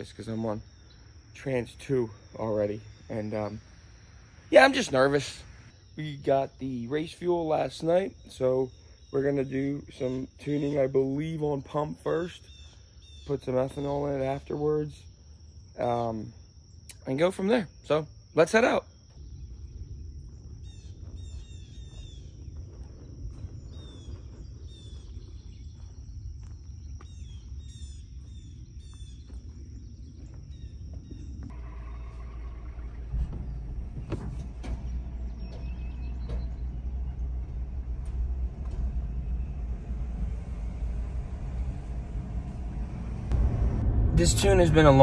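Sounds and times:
birds chirping: 0.0s - 45.0s
low rumble: 19.2s - 45.0s
truck engine running: 28.2s - 45.0s.

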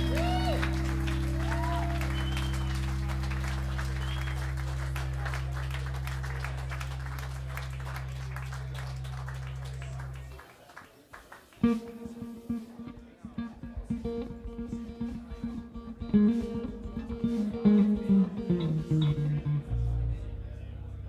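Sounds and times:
guitar note: 0.0s - 6.2s, 11.6s - 21.0s
live band holding final chord: 0.0s - 10.5s
audience applause: 0.0s - 12.2s.

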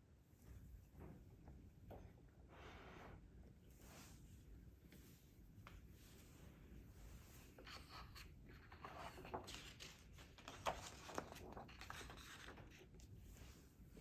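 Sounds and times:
book pages turning: 7.5s - 13.2s.

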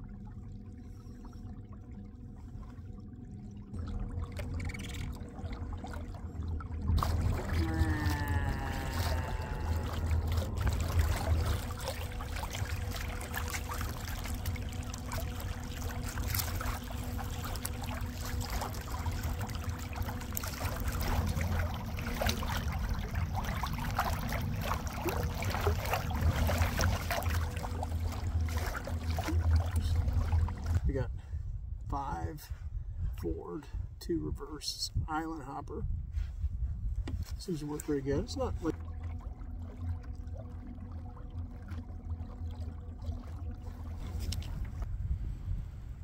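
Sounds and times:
water rushing along kayak hull: 3.8s - 31.5s, 37.0s - 44.9s
wind rumbling on microphone: 3.8s - 40.4s, 42.1s - 46.0s.

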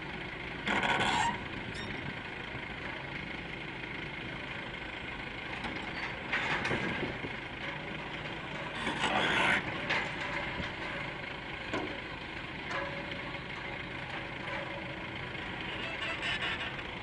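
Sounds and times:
diesel engine hum: 0.0s - 17.0s
steel creaks and clanks: 0.6s - 2.2s, 5.4s - 17.0s.

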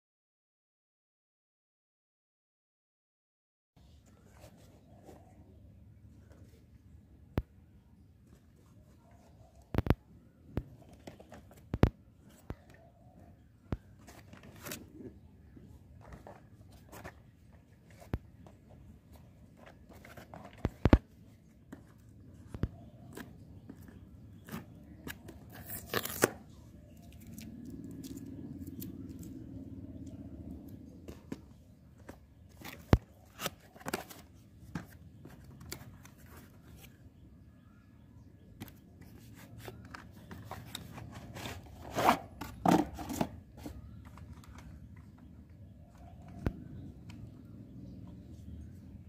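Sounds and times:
cardboard flaps scraping and rustling: 13.8s - 15.2s, 38.7s - 44.8s
cardboard tearing: 25.2s - 26.5s.

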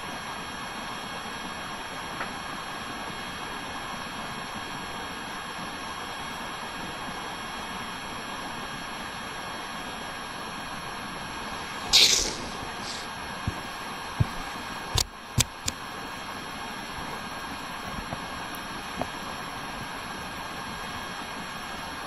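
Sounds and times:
background hiss: 11.7s - 13.1s.

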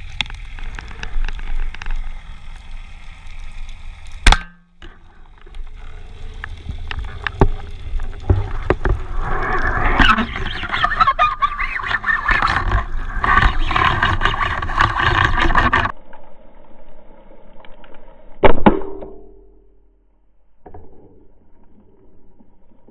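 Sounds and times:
rushing underwater noise: 0.0s - 16.0s
speargun firing crack: 18.4s - 19.4s.

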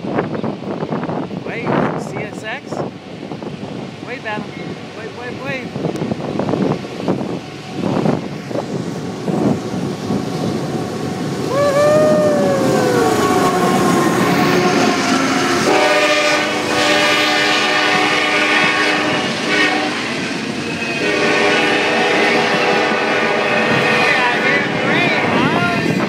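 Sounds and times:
freight train rumbling: 0.0s - 26.0s
locomotive air horn: 13.0s - 20.1s, 21.0s - 25.0s.

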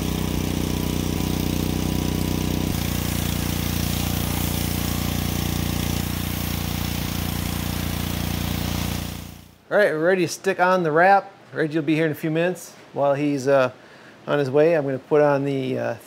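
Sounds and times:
pressure washer motor drone: 0.0s - 9.6s
water spray hissing: 0.0s - 9.6s.

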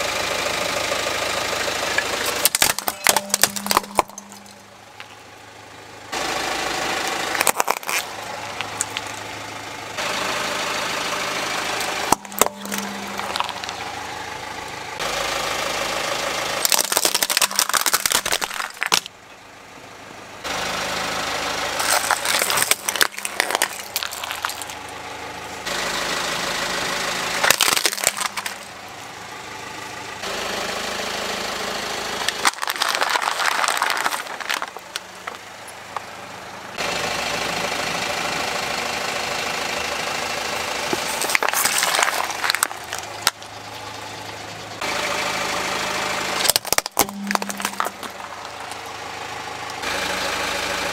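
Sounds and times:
car engine idling: 0.0s - 50.9s
plastic toy trucks breaking: 2.0s - 5.1s, 7.3s - 9.1s, 11.8s - 13.8s, 16.6s - 19.1s, 21.8s - 24.9s, 27.4s - 28.7s, 32.3s - 35.4s, 40.8s - 43.4s, 46.4s - 48.8s
tyre crushing objects: 2.2s - 4.6s, 7.4s - 8.2s, 12.1s - 13.8s, 16.6s - 19.1s, 21.8s - 24.8s, 27.4s - 28.7s, 32.3s - 35.4s, 40.9s - 43.4s, 46.4s - 48.4s.

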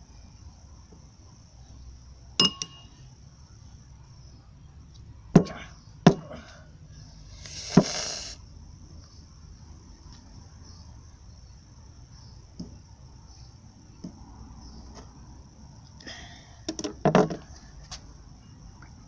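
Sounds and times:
metal bowl clinking on table: 2.4s - 2.9s.

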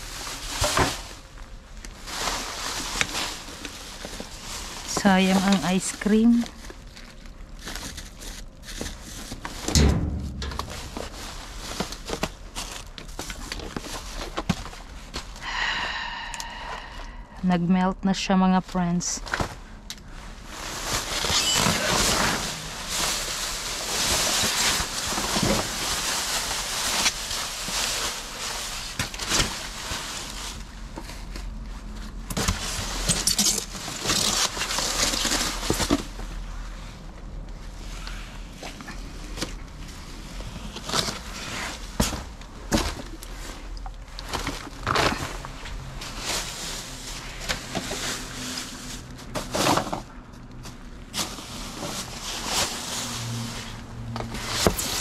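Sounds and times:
plastic bags rustling and crinkling: 0.0s - 15.5s, 18.1s - 55.0s
steady low hum: 8.8s - 12.6s
knocks and thumps: 9.7s - 11.8s.

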